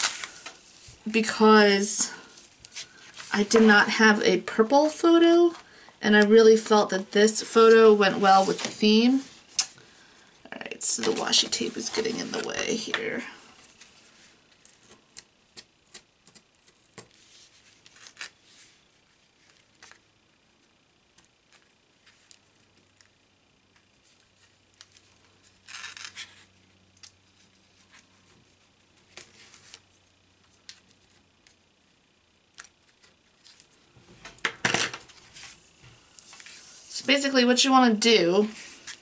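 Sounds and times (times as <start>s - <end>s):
paper and tape rustling: 0.0s - 1.2s, 8.1s - 9.7s.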